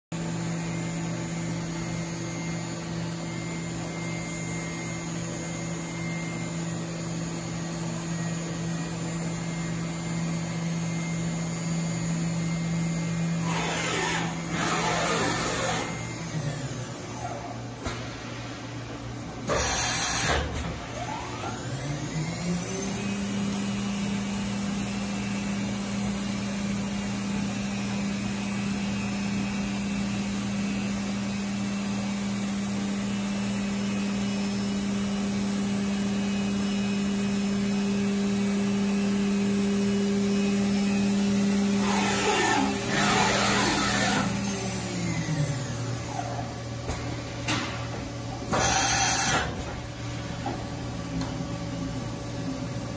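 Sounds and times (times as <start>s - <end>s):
machine spindle whining: 41.7s - 46.4s, 48.4s - 49.7s.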